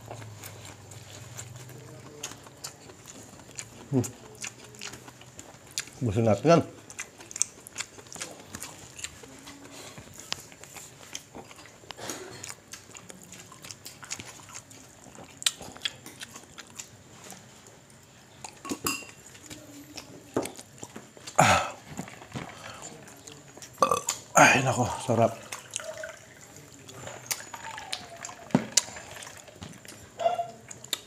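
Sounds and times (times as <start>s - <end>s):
chewing smacks: 0.0s - 6.1s, 6.7s - 17.4s, 25.4s - 31.0s
loud burp: 21.4s - 21.8s, 23.8s - 24.6s.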